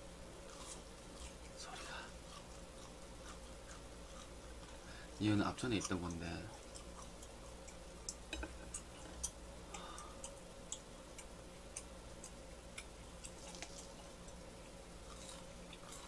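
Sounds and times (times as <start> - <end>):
crisp chewing clicks: 10.2 - 16.0.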